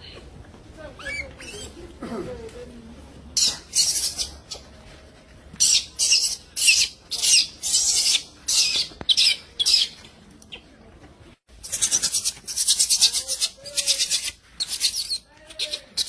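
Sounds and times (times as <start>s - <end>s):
infant monkey screaming: 1.0s - 1.8s, 3.4s - 4.6s, 5.6s - 9.9s, 11.6s - 16.0s.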